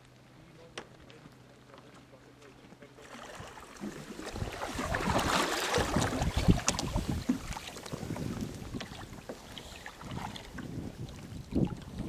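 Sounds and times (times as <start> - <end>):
water splashing around kayaks: 0.0 - 12.0
paddle blades splashing: 0.1 - 12.0
wind rumbling on microphone: 3.4 - 12.0.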